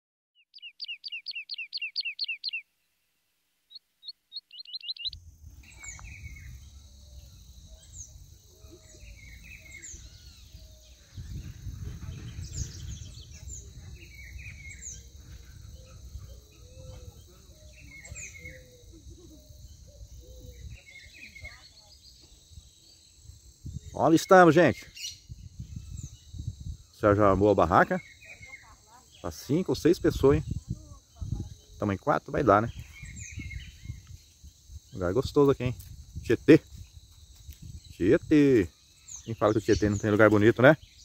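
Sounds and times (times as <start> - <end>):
birds chirping: 0.4 - 2.9, 3.6 - 41.0
rapid falling chirps: 3.7 - 5.2.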